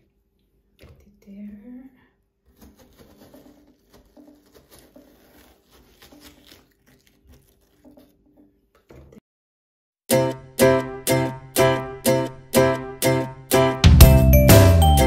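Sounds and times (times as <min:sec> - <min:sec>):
spoon scraping watermelon flesh: 0:02.4 - 0:08.6.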